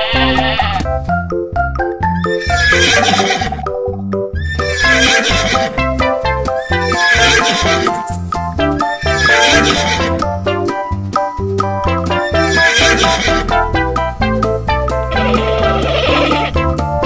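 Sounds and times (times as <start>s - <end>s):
horse whinnying: 0.0s - 0.9s, 2.2s - 3.8s, 4.4s - 5.8s, 6.6s - 8.0s, 8.8s - 10.2s, 12.2s - 13.5s, 15.1s - 16.6s
background music: 0.0s - 17.0s.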